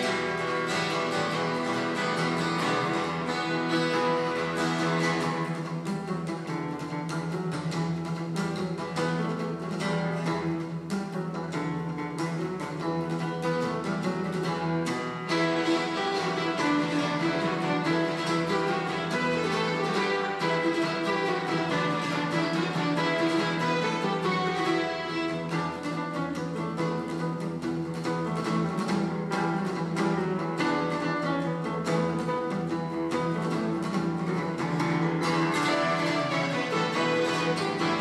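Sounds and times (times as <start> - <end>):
acoustic guitar strumming: 0.0 - 38.0
violins playing: 15.3 - 25.7, 35.6 - 38.0.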